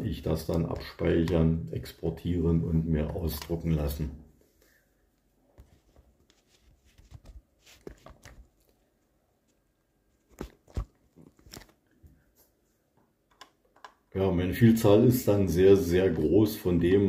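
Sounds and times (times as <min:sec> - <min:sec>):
computer mouse clicks and knocks: 0:13.0 - 0:14.1.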